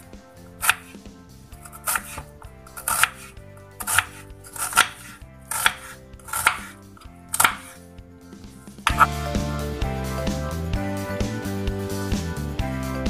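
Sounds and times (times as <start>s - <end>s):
background music: 0.0s - 13.0s
knife chopping on wooden board: 1.7s - 6.7s, 7.4s - 7.8s.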